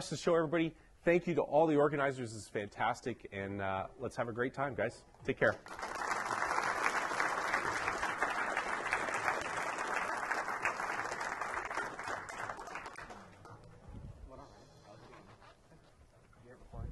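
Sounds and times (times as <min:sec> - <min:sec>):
audience applauding: 0:05.6 - 0:13.5.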